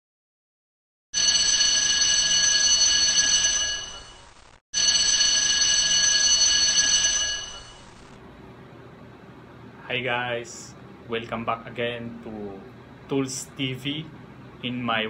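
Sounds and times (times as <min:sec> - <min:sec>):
bell ringing fast: 0:01.2 - 0:04.2, 0:04.8 - 0:08.0.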